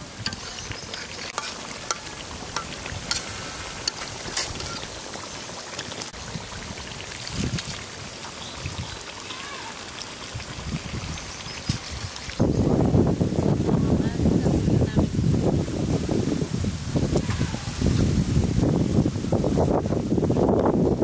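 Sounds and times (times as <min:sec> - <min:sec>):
curry simmering and sputtering: 0:00.0 - 0:14.1
spatula scraping pan: 0:00.2 - 0:04.9.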